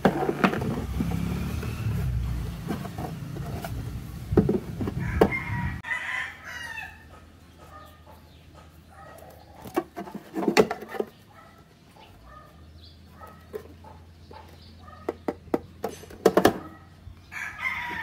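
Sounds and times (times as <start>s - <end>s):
rooster crowing: 4.9s - 7.2s, 17.3s - 18.0s.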